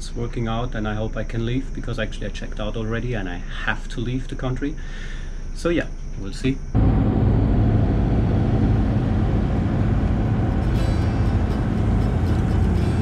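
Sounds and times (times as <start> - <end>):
diesel engine droning: 6.8 - 13.0.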